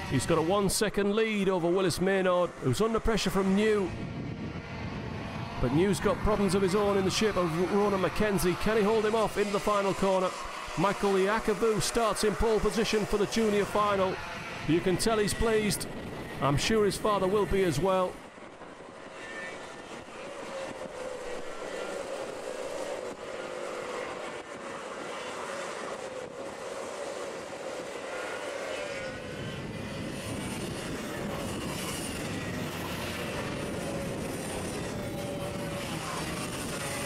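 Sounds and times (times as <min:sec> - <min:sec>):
kart engines whining: 0:00.0 - 0:37.0
deep engine rumble: 0:03.5 - 0:09.6.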